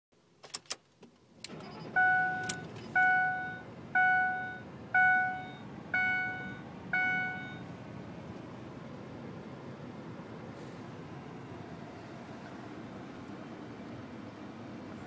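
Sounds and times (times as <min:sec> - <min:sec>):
truck engine low rumble: 0:01.2 - 0:15.0
dashboard warning chime dings: 0:01.5 - 0:07.7.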